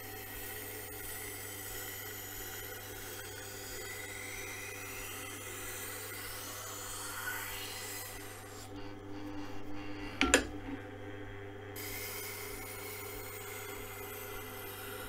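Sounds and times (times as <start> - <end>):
sharpening machine motor hum: 0.0 - 10.8, 11.8 - 15.0
knife scraping on grinding wheel: 3.5 - 10.6, 11.8 - 15.0.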